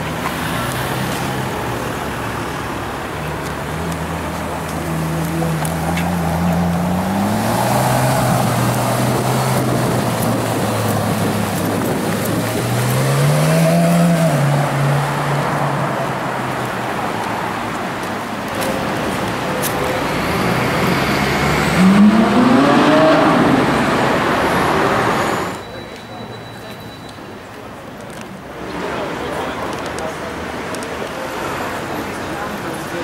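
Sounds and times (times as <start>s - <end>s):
sports car engine revving: 3.3s - 16.4s, 20.0s - 25.0s.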